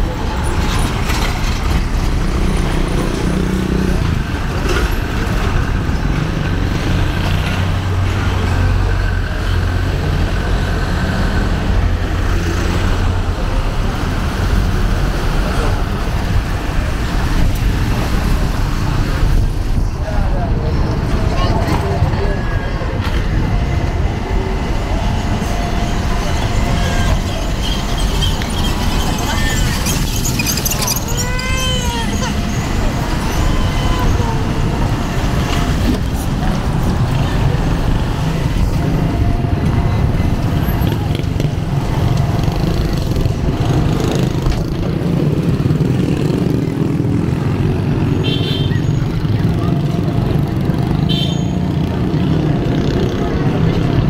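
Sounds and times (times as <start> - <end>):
motor traffic passing: 0.0 - 54.0
heavy low rumble: 15.8 - 45.7.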